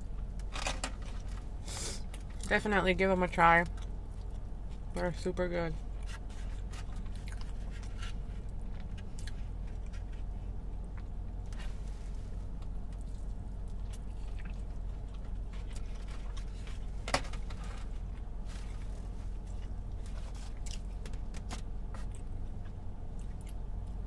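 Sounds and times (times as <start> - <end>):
steady low hum: 0.0 - 24.0
person chewing food: 3.7 - 4.9, 6.0 - 11.6, 12.6 - 17.0, 18.0 - 24.0.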